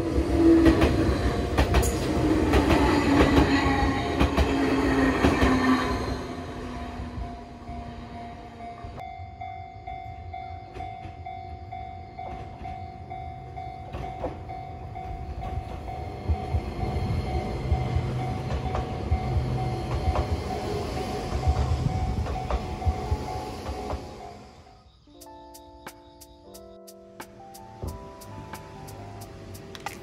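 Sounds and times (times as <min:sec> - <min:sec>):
train wheel rumble: 0:00.0 - 0:24.7
rail joint clicks: 0:00.1 - 0:24.4, 0:25.2 - 0:30.0
level crossing bell ringing: 0:06.6 - 0:24.4.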